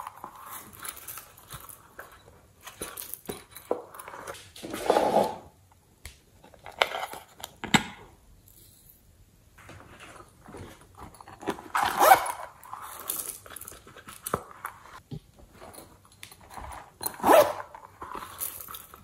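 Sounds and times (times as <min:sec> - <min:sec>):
handling rustle: 0:00.0 - 0:04.5, 0:09.6 - 0:19.0.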